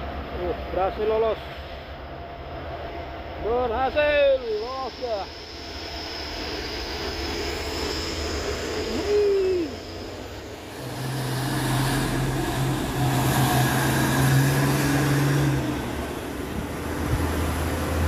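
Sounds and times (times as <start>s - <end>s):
truck diesel engine droning: 1.4s - 18.0s
rising then falling sound: 5.5s - 18.0s
small car passing: 7.1s - 18.0s.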